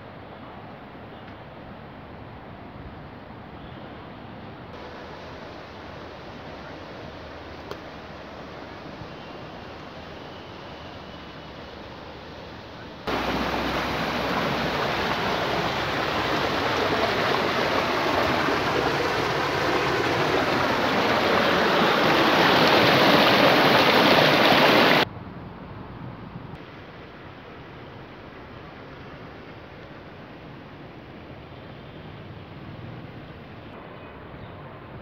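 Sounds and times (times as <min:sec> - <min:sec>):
river rushing past boulders: 0:04.8 - 0:09.0, 0:13.1 - 0:25.1.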